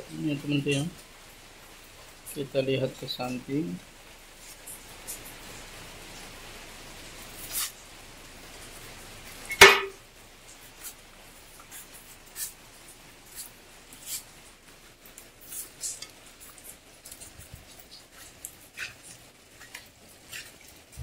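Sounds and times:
faint hiss: 0.0s - 21.0s
rain drops ticking: 0.0s - 21.0s
loud sharp knock: 9.6s - 10.0s.

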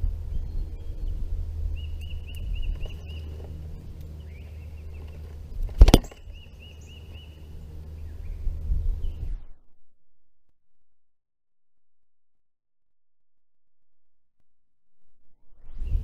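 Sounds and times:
wind rumbling on microphone: 0.0s - 9.6s, 15.4s - 16.0s
songbird chirping: 0.3s - 9.4s.

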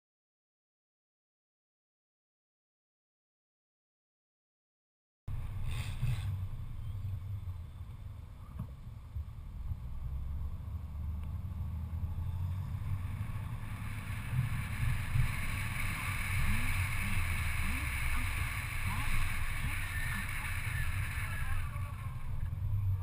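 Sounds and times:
car engine and road noise: 5.3s - 23.0s
wind noise: 12.0s - 23.0s.

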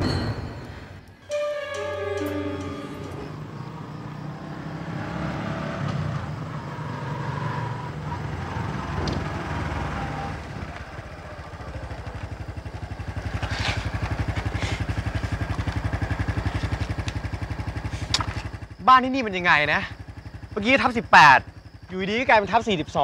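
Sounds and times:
small motorcycle idling: 9.3s - 23.0s.

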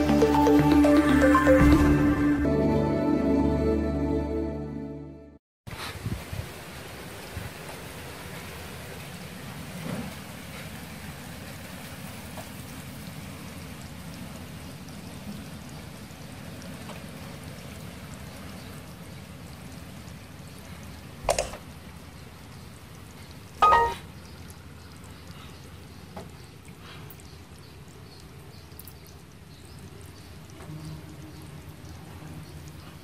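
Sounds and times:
snails feeding hiss: 25.0s - 33.0s.

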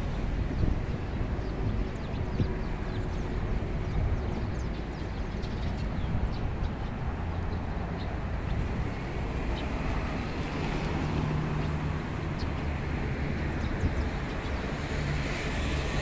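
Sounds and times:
steady traffic noise: 0.0s - 16.0s.

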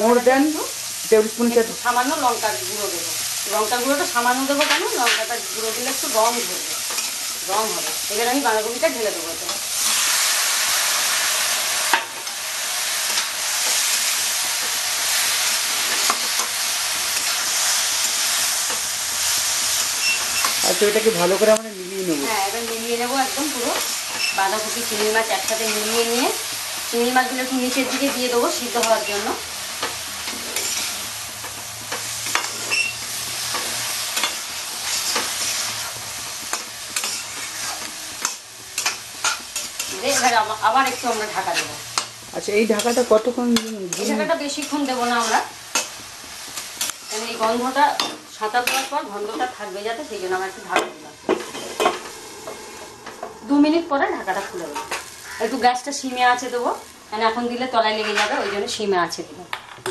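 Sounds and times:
food sizzling in oil: 0.0s - 59.9s
metal spatula scraping pan: 23.6s - 26.2s, 27.6s - 31.0s, 32.3s - 42.1s, 57.9s - 58.8s.

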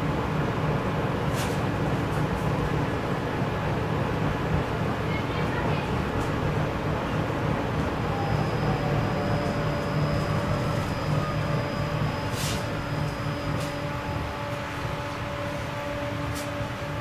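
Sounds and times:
tram wheels rumbling on rails: 0.0s - 17.0s
electric drive whine: 7.5s - 16.8s.

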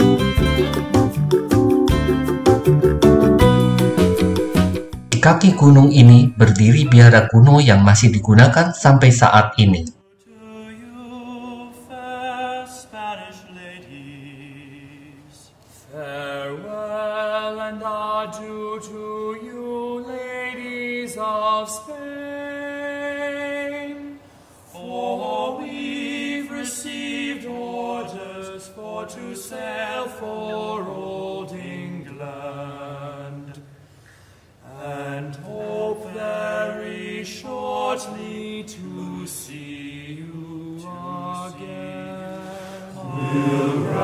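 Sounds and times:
slow chanting voices: 10.0s - 44.0s.

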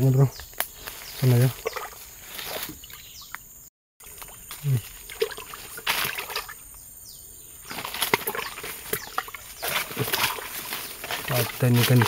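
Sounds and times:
leaves and brush rustling: 0.0s - 12.0s.

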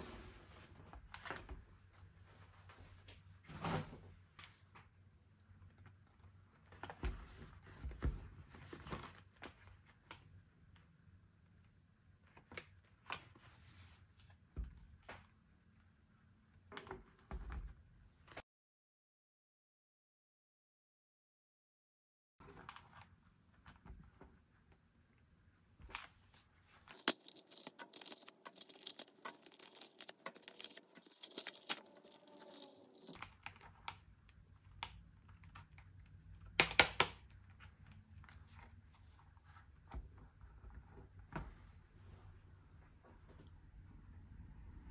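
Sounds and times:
leather wallet clicks and rustles: 26.9s - 33.3s.

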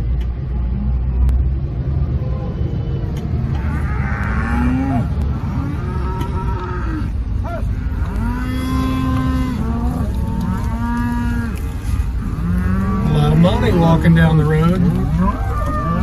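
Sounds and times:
low vehicle rumble: 0.0s - 16.0s
cattle mooing: 3.5s - 16.0s.

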